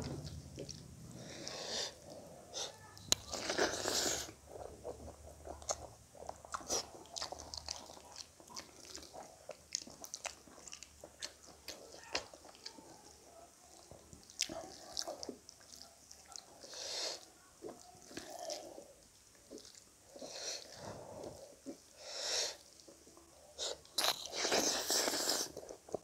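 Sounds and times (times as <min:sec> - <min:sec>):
wet chewing: 0:00.0 - 0:26.0
noisy bite and slurp: 0:01.4 - 0:12.7, 0:23.6 - 0:26.0.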